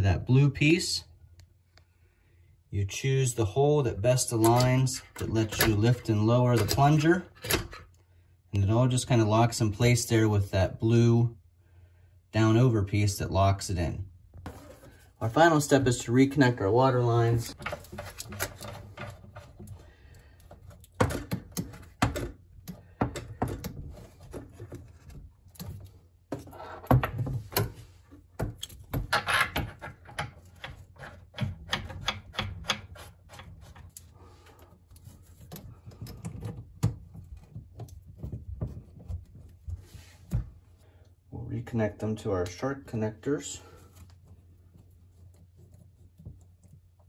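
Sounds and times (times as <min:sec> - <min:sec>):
small metallic clicks and knocks: 0:28.4 - 0:39.2.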